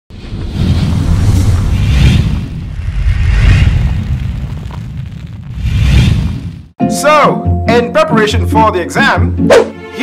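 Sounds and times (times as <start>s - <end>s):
deep rumble: 0.1s - 6.8s
hissing whoosh: 0.2s - 6.8s.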